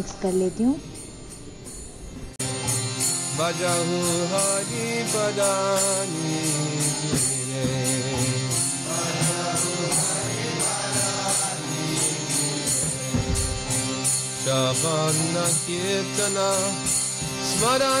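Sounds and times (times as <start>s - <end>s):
jingling percussion: 0.0s - 18.0s
person singing a chant: 3.4s - 13.3s.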